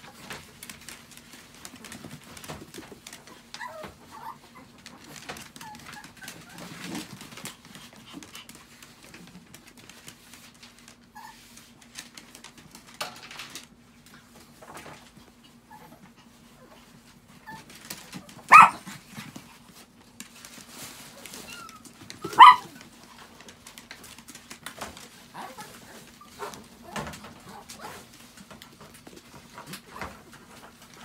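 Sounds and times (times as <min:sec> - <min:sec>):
small dog barking: 0:18.5 - 0:18.9, 0:22.2 - 0:22.8.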